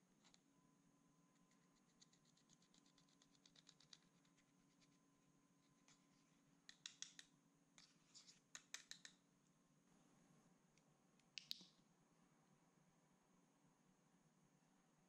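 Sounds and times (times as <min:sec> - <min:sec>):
small tool scraping eyeshadow: 0:01.4 - 0:05.0.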